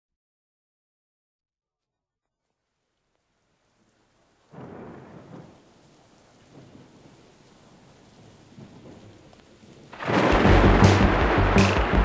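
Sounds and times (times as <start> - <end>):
faint rain: 2.4 - 12.0
low rumbles of thunder: 4.5 - 12.0.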